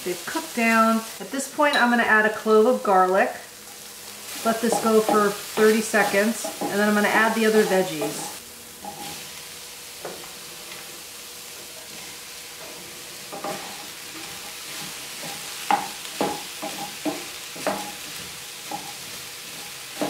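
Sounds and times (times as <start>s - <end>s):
vegetables sizzling in pan: 0.0s - 20.0s
spatula clacking and scraping pan: 3.7s - 9.4s, 11.6s - 20.0s.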